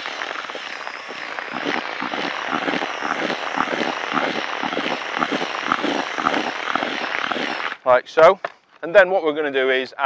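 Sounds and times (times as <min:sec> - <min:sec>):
drill motor whine: 0:00.0 - 0:07.8
dry mix rustling and scraping: 0:00.0 - 0:07.8.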